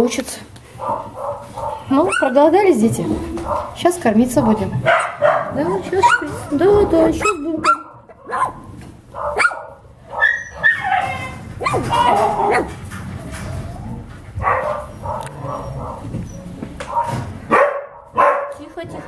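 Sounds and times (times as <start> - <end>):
puppies whimpering and yelping: 5.5 - 8.5, 10.1 - 12.8.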